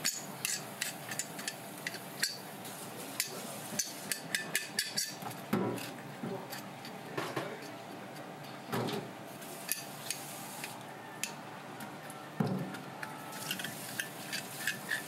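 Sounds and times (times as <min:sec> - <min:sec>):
scaler scraping fish scales: 0:13.2 - 0:15.0.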